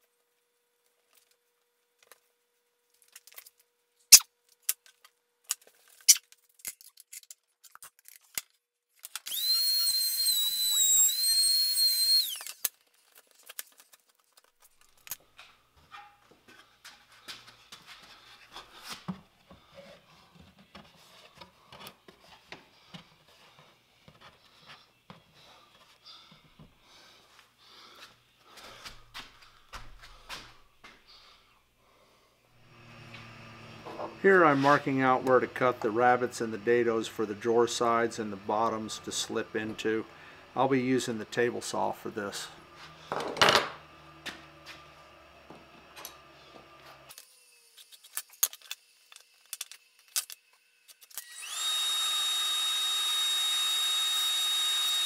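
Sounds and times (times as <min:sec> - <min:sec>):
power tool whining: 0:09.2 - 0:12.7, 0:32.5 - 0:55.0.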